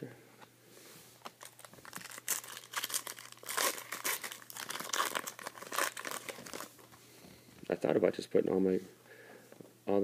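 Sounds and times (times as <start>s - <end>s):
foil wrapper crinkling and tearing: 1.3s - 6.9s.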